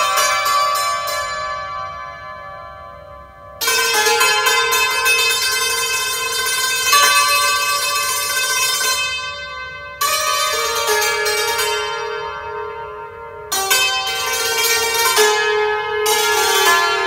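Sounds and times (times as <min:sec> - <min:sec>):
hammered dulcimer playing: 0:13.5 - 0:17.0.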